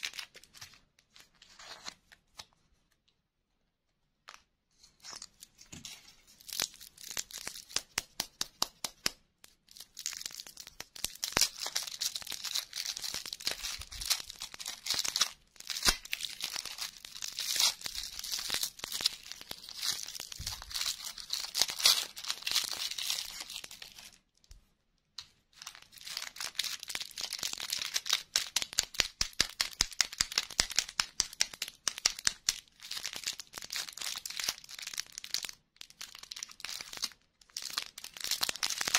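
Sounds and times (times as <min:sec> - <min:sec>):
plastic wrappers crinkling and tearing: 0:04.8 - 0:08.0, 0:09.7 - 0:24.2, 0:25.6 - 0:38.9.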